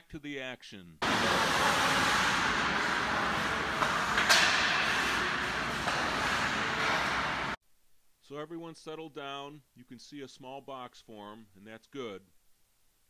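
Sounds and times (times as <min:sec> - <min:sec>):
sharp crack: 0:01.0 - 0:07.6
skates on ice: 0:01.0 - 0:07.6.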